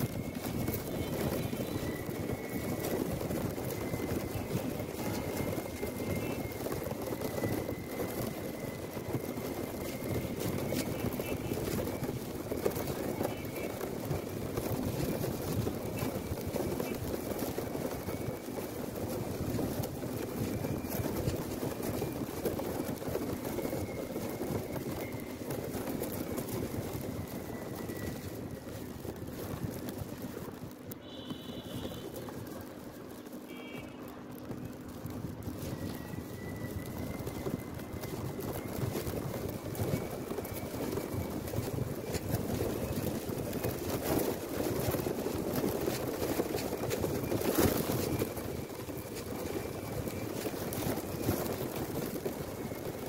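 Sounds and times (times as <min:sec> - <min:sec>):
wind buffeting microphone: 0:00.0 - 0:53.0
faint thin whistle: 0:31.0 - 0:32.2, 0:33.5 - 0:34.1, 0:35.6 - 0:38.1.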